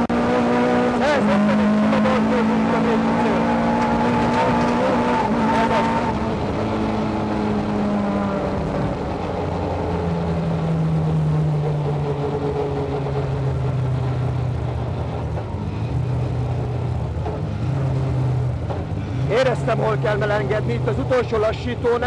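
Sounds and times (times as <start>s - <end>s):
car engine revving hard: 0.0s - 14.2s.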